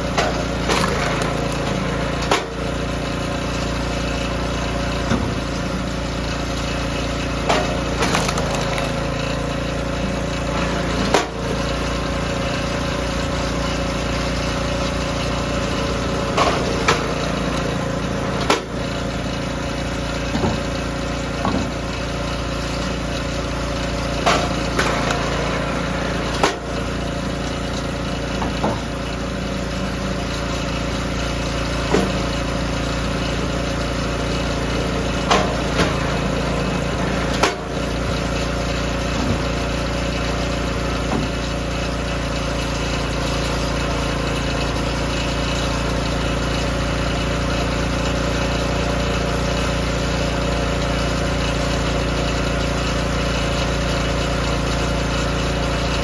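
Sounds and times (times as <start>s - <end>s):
small gas engine running: 0.0s - 56.0s
wood cracking as split: 0.7s - 1.8s, 7.9s - 9.3s.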